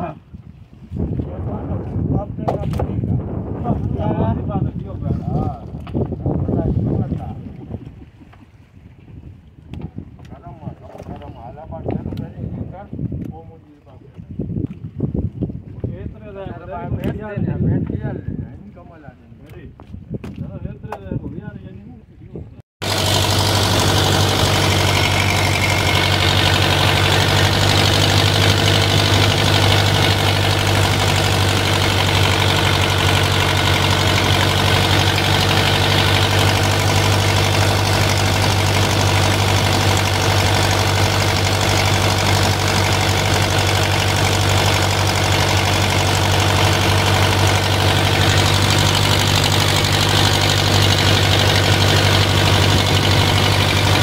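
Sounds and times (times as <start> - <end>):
boat engine idling: 22.8 - 54.0.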